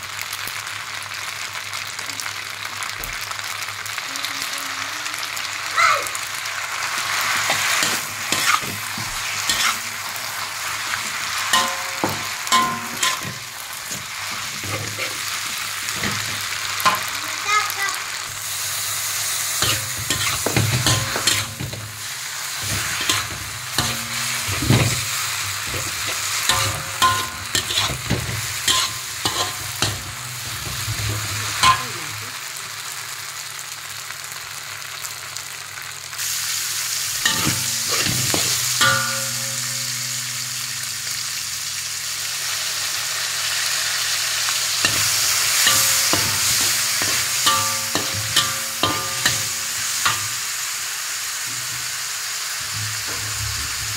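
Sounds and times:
food sizzling in oil: 0:00.0 - 0:53.9
metal spatula scraping wok: 0:06.9 - 0:17.2, 0:18.3 - 0:32.2, 0:37.1 - 0:41.5, 0:44.8 - 0:50.6.

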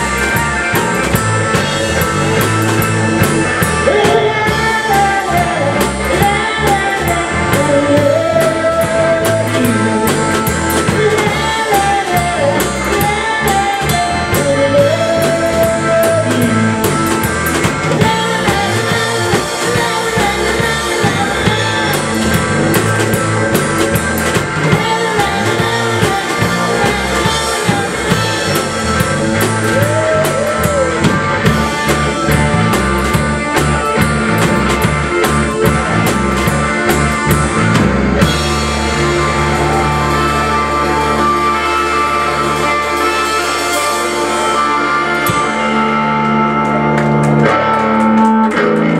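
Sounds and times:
rock band playing: 0:00.0 - 0:48.9
lead vocals singing: 0:03.7 - 0:17.2, 0:17.8 - 0:22.8, 0:24.6 - 0:28.8, 0:29.4 - 0:31.4.

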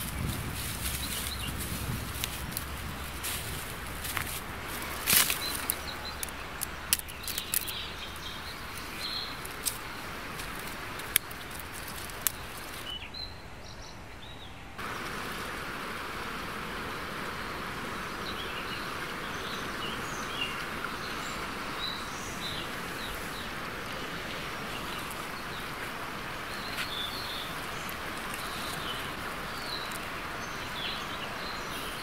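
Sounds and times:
small birds chirping: 0:00.0 - 0:15.0, 0:16.0 - 0:32.0
sharp clicks and snaps: 0:05.0 - 0:07.8, 0:10.4 - 0:12.9.

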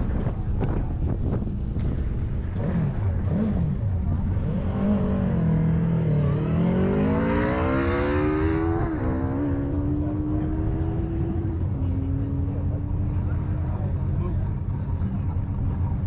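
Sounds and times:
motorcycle engine revving: 0:01.8 - 0:16.0.

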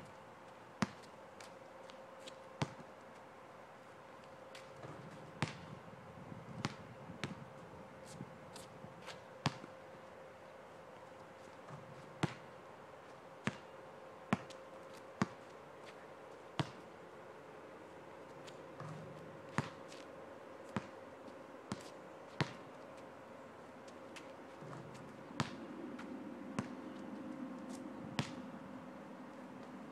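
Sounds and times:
basketball bouncing on asphalt: 0:00.8 - 0:01.5, 0:02.6 - 0:02.9, 0:04.5 - 0:05.8, 0:06.6 - 0:07.6, 0:09.4 - 0:09.7, 0:11.6 - 0:12.6, 0:13.4 - 0:13.7, 0:14.3 - 0:16.0, 0:16.6 - 0:16.9, 0:18.8 - 0:20.0, 0:20.7 - 0:21.0, 0:21.7 - 0:22.8, 0:24.6 - 0:27.0, 0:28.2 - 0:28.4.

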